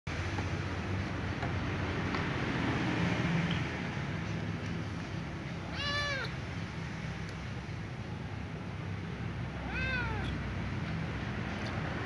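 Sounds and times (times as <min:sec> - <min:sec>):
cat meowing: 0:05.6 - 0:06.4, 0:09.5 - 0:10.4.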